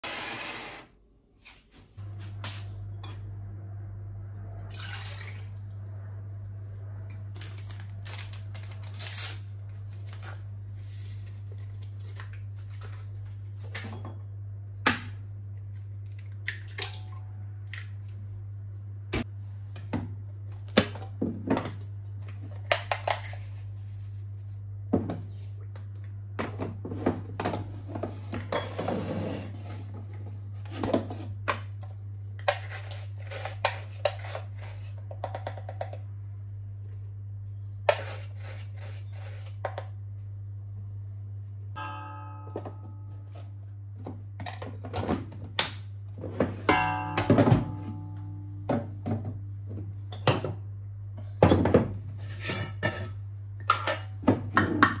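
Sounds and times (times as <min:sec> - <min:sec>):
steady low hum: 0:00.2 - 0:55.0.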